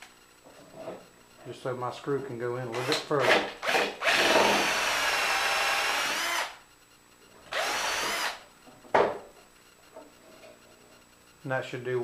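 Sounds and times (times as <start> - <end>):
cordless drill countersinking wood: 2.7 - 6.6, 7.5 - 8.4.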